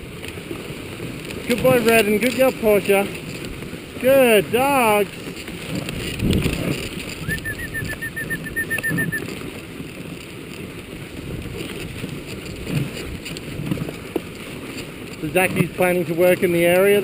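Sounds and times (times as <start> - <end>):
sled rumbling over snow: 0.0 - 17.0
short high peeps: 7.2 - 9.3.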